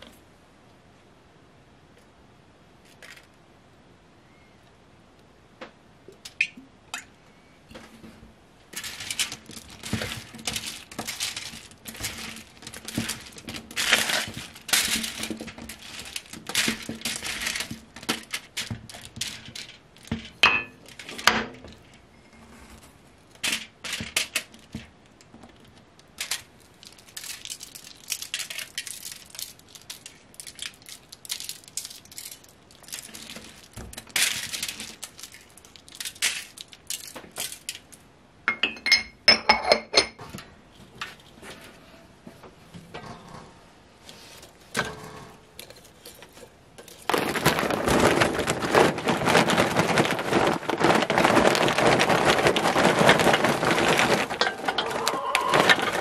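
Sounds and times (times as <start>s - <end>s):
aluminum foil crinkling: 8.6s - 22.0s, 23.3s - 38.0s, 45.6s - 56.0s.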